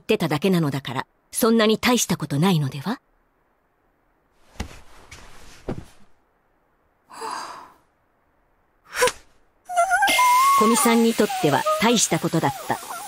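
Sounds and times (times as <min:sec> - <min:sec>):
girl sighing: 0:07.1 - 0:07.8.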